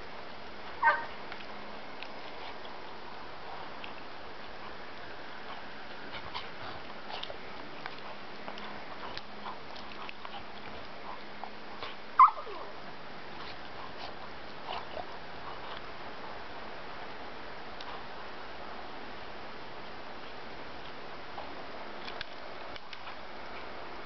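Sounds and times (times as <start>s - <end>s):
dog yelping: 0.8s - 1.1s, 12.2s - 12.7s
dogs yipping and whining: 0.8s - 1.2s, 12.2s - 12.8s.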